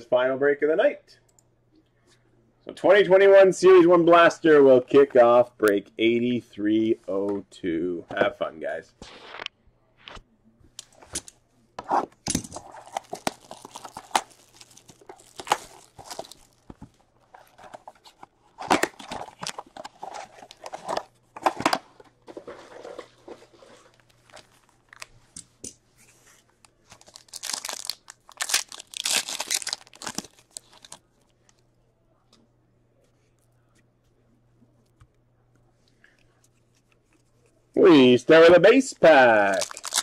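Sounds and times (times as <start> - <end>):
plastic wrapper crinkling: 12.6 - 21.1, 23.7 - 25.3, 26.7 - 31.6, 39.4 - 40.0.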